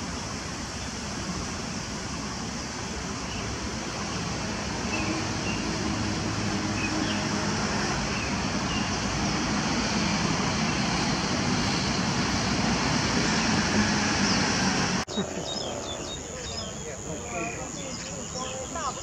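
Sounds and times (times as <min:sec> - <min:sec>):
road traffic roar: 0:00.0 - 0:19.0.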